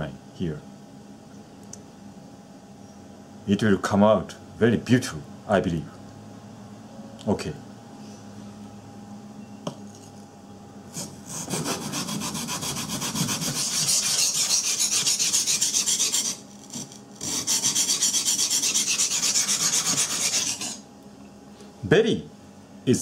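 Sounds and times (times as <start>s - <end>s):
knife scraping on sharpening stone: 17.4s - 20.8s.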